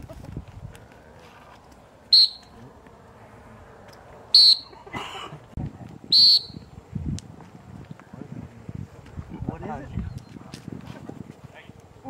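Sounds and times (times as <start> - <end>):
shrill whistle blasts: 2.1 - 2.5, 4.3 - 4.8, 6.1 - 6.7.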